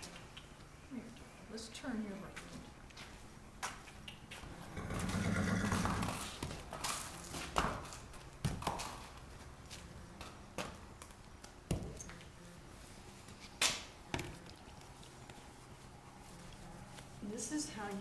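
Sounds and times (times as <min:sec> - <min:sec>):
horse hooves on concrete: 0:00.0 - 0:18.0.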